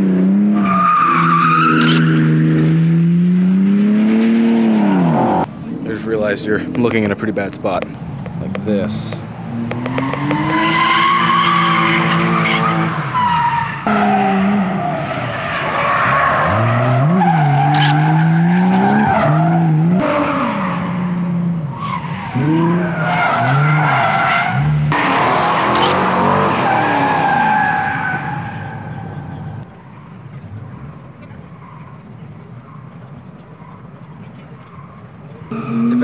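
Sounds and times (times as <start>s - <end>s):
car engine revving hard: 0.0s - 5.5s, 22.3s - 29.5s, 35.5s - 36.0s
tyres screeching: 9.5s - 30.2s.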